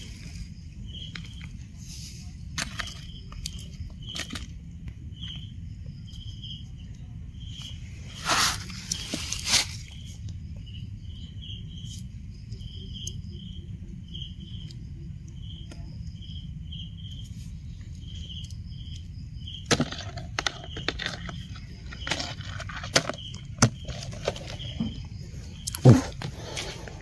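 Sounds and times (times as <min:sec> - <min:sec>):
footsteps on dry leaves: 0:08.2 - 0:10.0.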